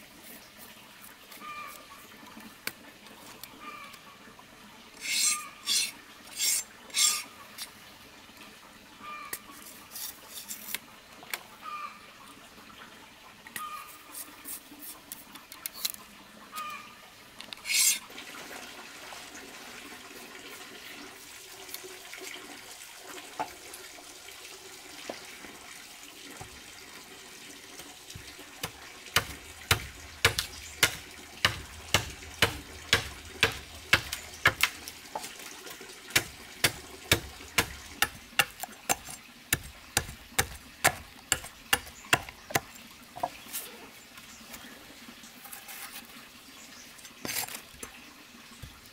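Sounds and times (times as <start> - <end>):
bamboo splitting and rustling: 5.0 - 7.7, 17.5 - 18.0, 28.1 - 35.5, 36.1 - 43.7
machete chopping on wooden block: 28.6 - 34.8, 36.2 - 43.4.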